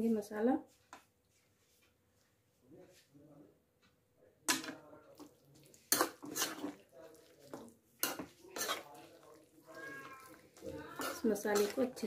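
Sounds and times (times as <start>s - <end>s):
metal utensil scraping metal pot: 5.8s - 12.0s.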